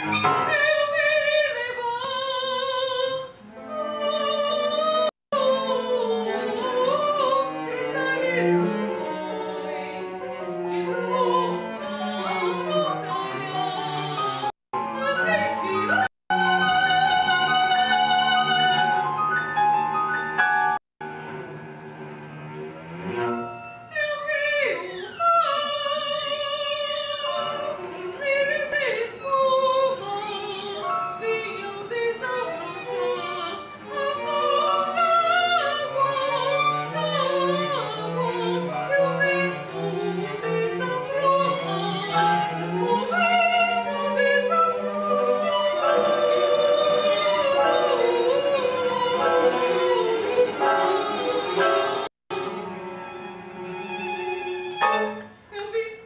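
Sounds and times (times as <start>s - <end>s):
soprano singing: 0.0s - 20.2s, 23.4s - 56.0s
violin playing: 3.4s - 20.4s, 21.0s - 55.8s
cello holding low notes: 21.0s - 23.8s.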